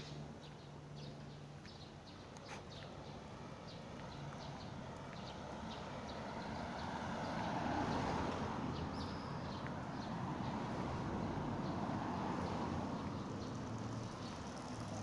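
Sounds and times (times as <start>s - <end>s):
traffic noise: 0.0s - 15.0s
car driving past: 5.3s - 15.0s.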